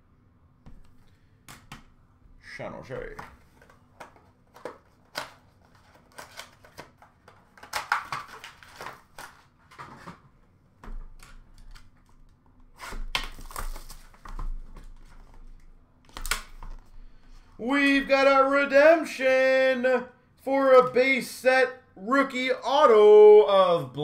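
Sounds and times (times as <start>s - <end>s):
cardboard packaging rustling: 3.1s - 10.4s, 11.0s - 16.9s.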